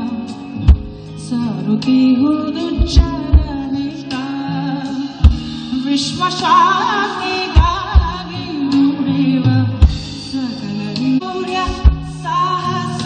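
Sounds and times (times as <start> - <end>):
drum kit and bass: 0.0 - 13.0
kick drum hits: 0.7 - 1.0, 2.8 - 3.6, 5.2 - 5.5, 7.6 - 8.2, 9.8 - 10.1, 11.7 - 12.2.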